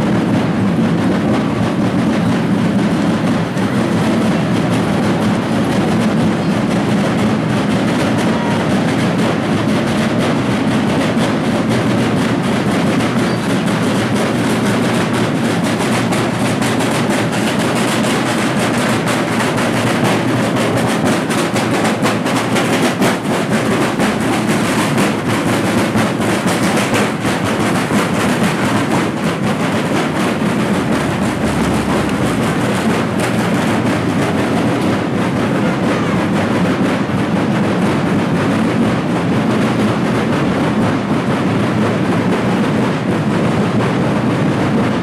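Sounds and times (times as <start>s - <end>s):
marching drums rattling: 0.0s - 45.0s.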